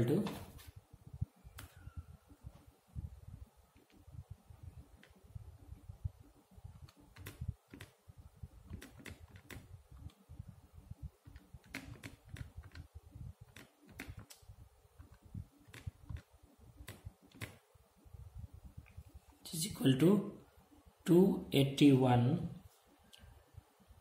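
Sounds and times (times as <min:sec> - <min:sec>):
calculator keys clicking: 0:08.7 - 0:09.7, 0:11.3 - 0:12.9, 0:13.5 - 0:14.4, 0:15.0 - 0:17.6.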